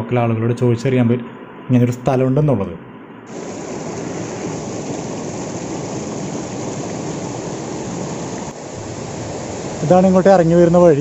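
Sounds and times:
waterfall roar: 3.3s - 11.0s.

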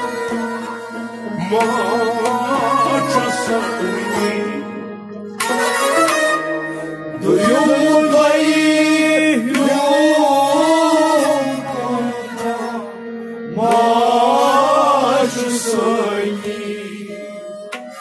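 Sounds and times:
held drone accompaniment: 0.0s - 18.0s
man singing: 1.2s - 5.0s, 7.2s - 17.4s.

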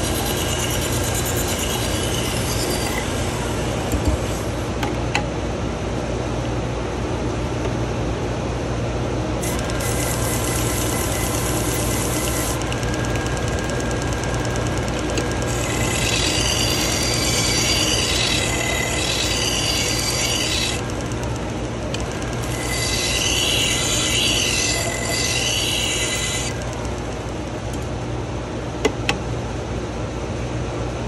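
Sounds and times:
knife grinding on belt: 0.0s - 3.2s, 9.4s - 21.3s, 21.9s - 26.8s
belt sharpener motor hum: 0.0s - 4.8s, 9.4s - 28.0s.

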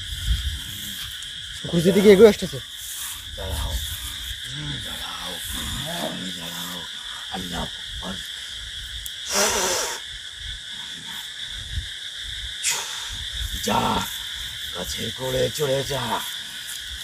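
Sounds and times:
night insects chirring: 0.0s - 17.0s
man exhaling forcefully: 9.2s - 10.0s.

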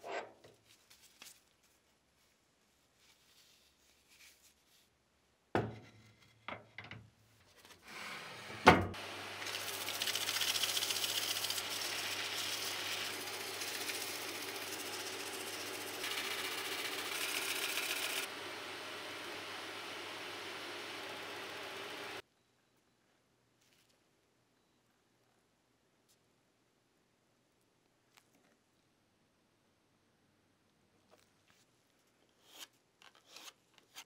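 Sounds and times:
power tool humming and hissing: 9.0s - 22.2s.

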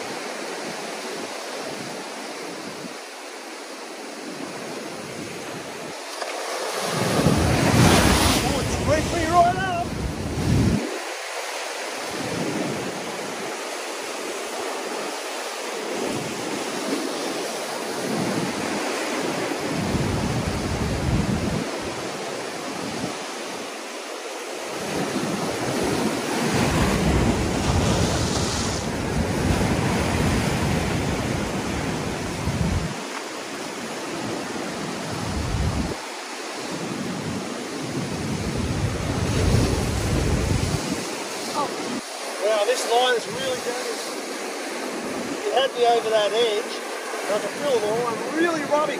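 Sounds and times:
wind gusting on microphone: 0.0s - 23.8s, 24.6s - 48.9s
ocean swell washing over rock: 0.0s - 48.9s.

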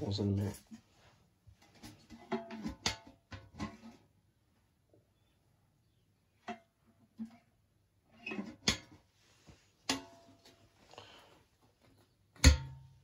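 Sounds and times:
metal canister clicking and knocking: 1.7s - 4.0s, 12.4s - 13.0s.

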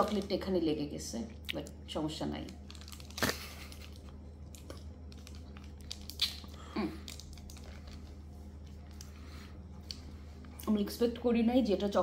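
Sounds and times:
low steady hum: 0.0s - 12.0s
biscuit stick crunching: 2.4s - 9.2s.

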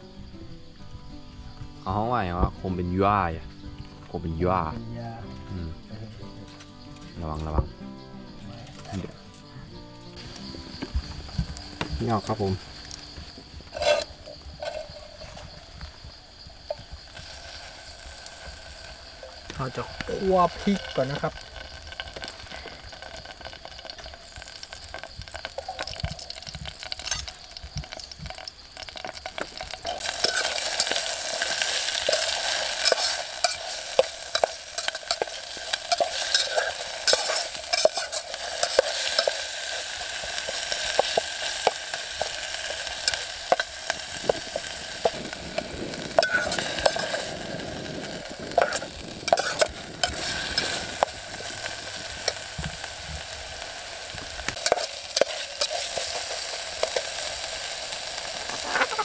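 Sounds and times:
chilies sizzling in a pan: 1.8s - 59.0s
utensil scraping pan: 13.7s - 15.5s, 29.9s - 39.4s, 48.5s - 51.1s.

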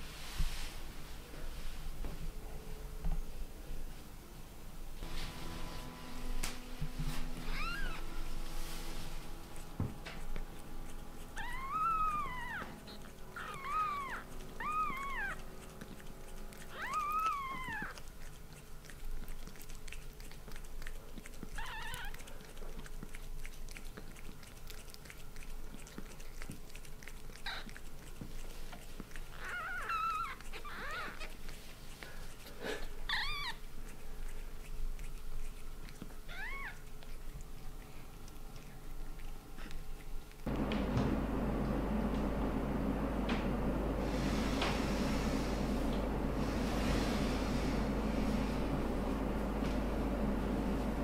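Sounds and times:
kittens mewing: 7.4s - 8.2s, 11.2s - 18.1s.

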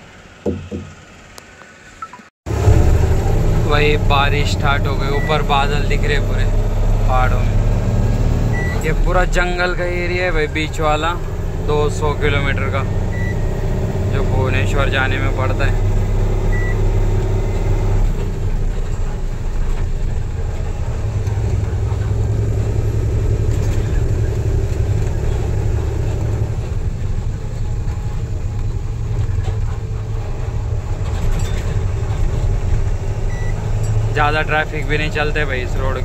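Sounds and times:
truck engine and tyre noise: 0.0s - 36.0s.

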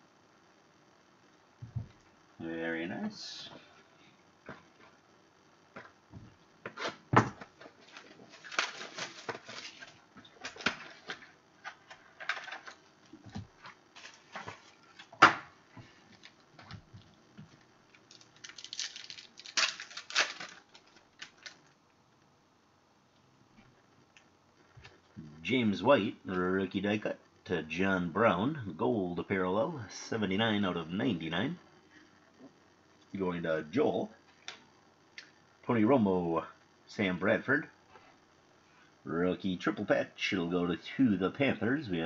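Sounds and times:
crinkly rustling of card packs: 7.6s - 12.9s, 13.6s - 15.2s, 17.9s - 21.8s.

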